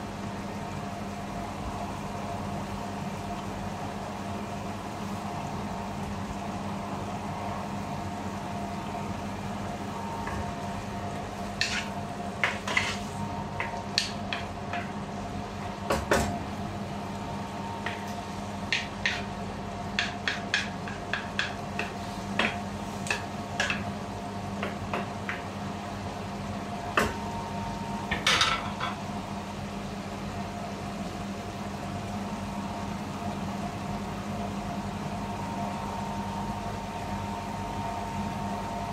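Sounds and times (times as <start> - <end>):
steady hum: 0.0 - 38.9
spatula scraping and tapping wok: 11.5 - 15.0, 18.7 - 19.3, 19.9 - 23.9.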